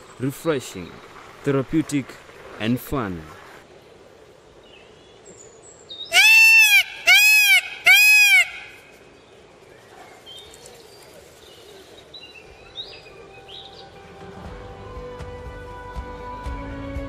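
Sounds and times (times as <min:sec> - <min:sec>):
peacock calling: 0:06.0 - 0:09.0.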